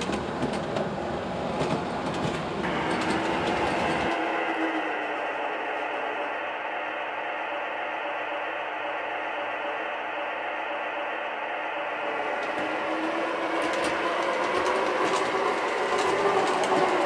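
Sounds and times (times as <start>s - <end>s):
wheels clicking on rails: 0.0s - 5.0s, 12.1s - 17.0s.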